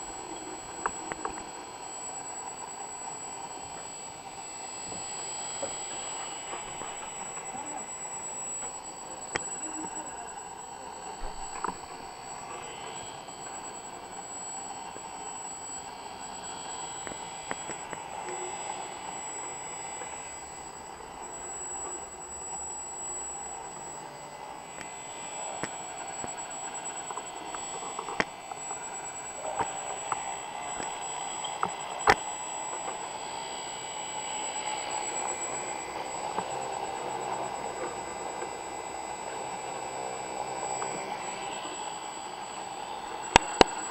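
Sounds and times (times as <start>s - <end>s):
engraver spindle motor whining: 0.0s - 43.9s
high-pitched electrical whine: 0.0s - 43.9s
sharp clicks: 5.6s - 18.8s, 25.5s - 33.0s, 43.1s - 43.9s.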